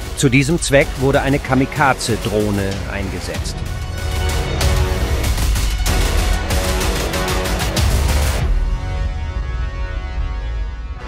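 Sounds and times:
drum hits: 0.0 - 8.5
background music with heavy bass: 0.0 - 11.0.

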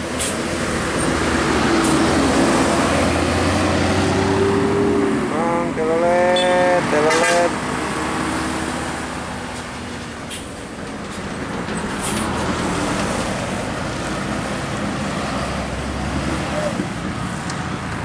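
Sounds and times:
motorcycles passing: 0.0 - 10.2
coach diesel engine passing: 0.0 - 18.0.

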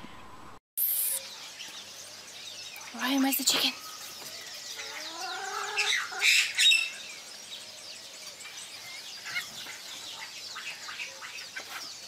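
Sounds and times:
small birds chirping: 0.8 - 12.0
drawn-out rising animal call: 4.8 - 6.6.

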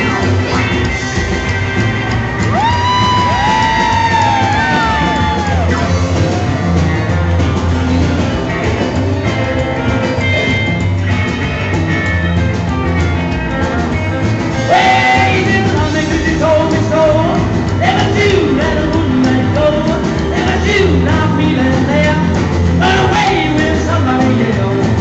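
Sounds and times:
electric guitar lead: 0.0 - 25.0
live rock and roll band: 0.0 - 25.0
man singing: 14.6 - 25.0.

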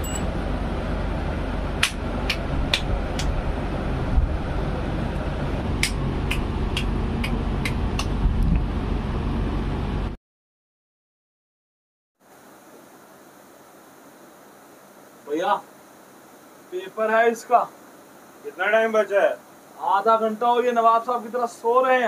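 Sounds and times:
hand claps: 1.8 - 3.4, 5.8 - 8.2.

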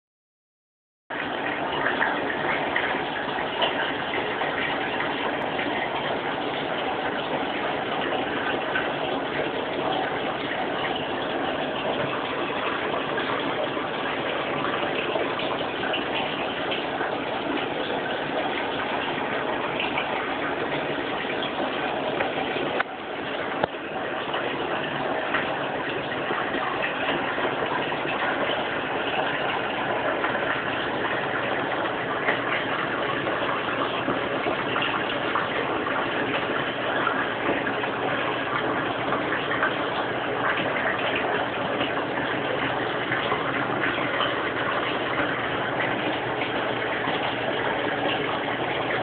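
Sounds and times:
running splashing water: 1.1 - 49.0.

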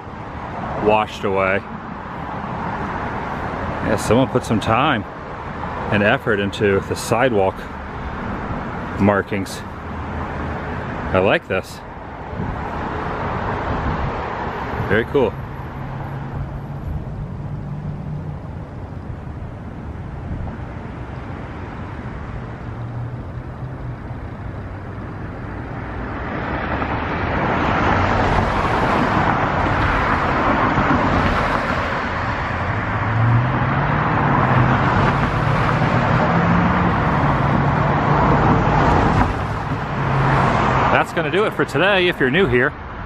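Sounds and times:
road traffic rushing: 0.0 - 43.0
engine hum rising in pitch: 12.7 - 31.2, 32.2 - 41.0.

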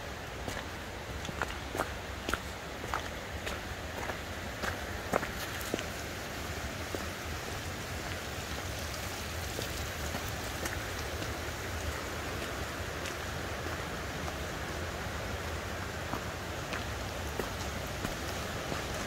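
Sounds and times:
stream water rushing: 0.0 - 19.0
footsteps on rocky gravel: 0.2 - 7.1, 9.4 - 14.5, 16.0 - 19.0.

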